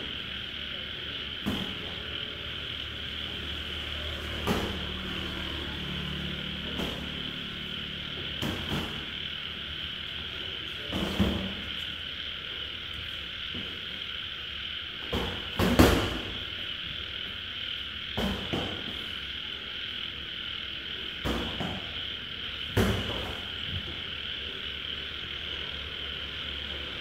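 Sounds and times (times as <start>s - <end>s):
frogs and night insects chorus: 0.0s - 27.0s.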